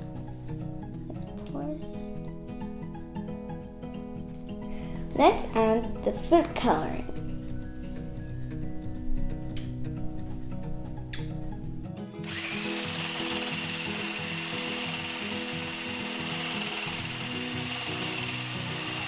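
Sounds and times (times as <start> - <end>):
electric mixer whining: 12.2 - 19.0.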